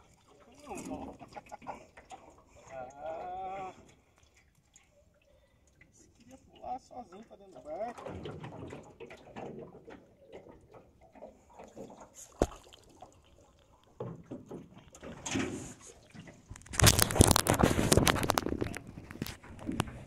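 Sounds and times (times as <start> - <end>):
knocks and rattles on metal boat: 7.9 - 12.1, 14.0 - 16.5.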